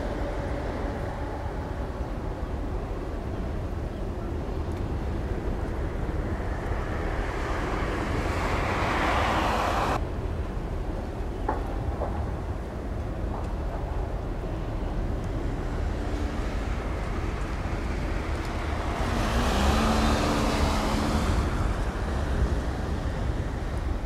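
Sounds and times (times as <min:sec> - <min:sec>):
broad rushing noise: 0:00.0 - 0:11.4.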